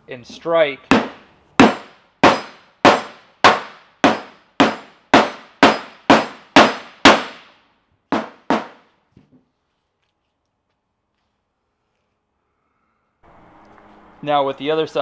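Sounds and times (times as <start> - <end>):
hammer striking metal sleeve: 0.9 - 8.8.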